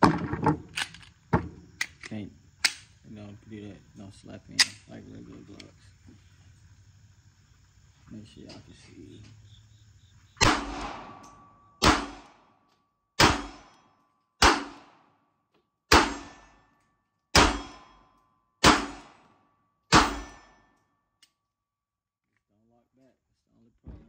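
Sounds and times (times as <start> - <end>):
pistol shots: 10.4 - 12.4, 13.2 - 13.8, 14.4 - 15.1, 15.9 - 16.6, 17.3 - 18.0, 18.6 - 19.3, 19.9 - 20.6.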